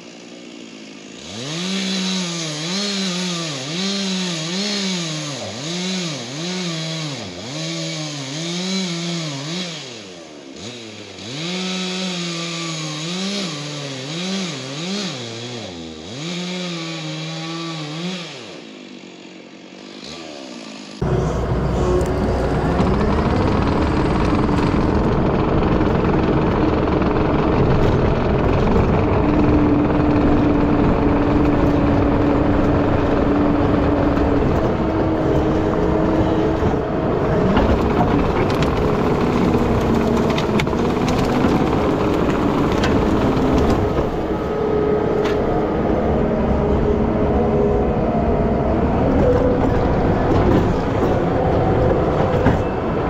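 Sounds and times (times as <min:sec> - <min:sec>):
skid steer engine running: 0:00.0 - 0:53.0
hydraulic whine: 0:20.2 - 0:53.0.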